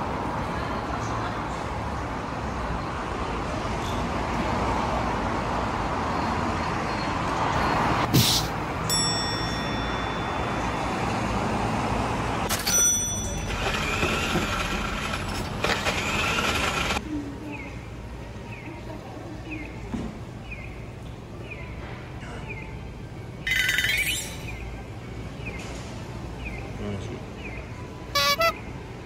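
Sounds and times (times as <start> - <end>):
street background noise: 0.0 - 29.0
bell-like ring: 8.9 - 11.4, 12.5 - 14.0.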